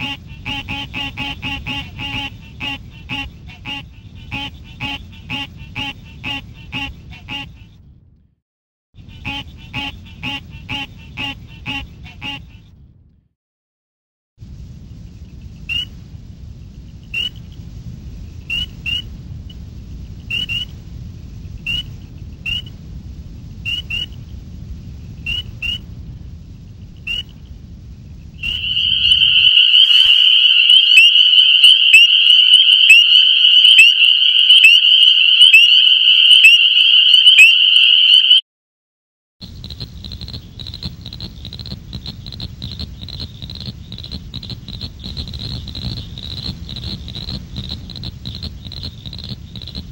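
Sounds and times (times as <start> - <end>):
dense chorus of peepers ringing: 28.4 - 38.4
spring peepers calling: 28.4 - 38.4.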